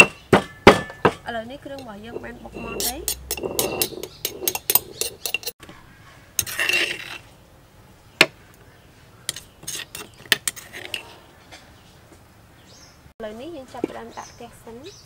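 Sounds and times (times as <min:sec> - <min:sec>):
kitchen utensils clinking: 0:00.0 - 0:05.6
scraping rustle: 0:01.7 - 0:07.4, 0:09.3 - 0:12.3.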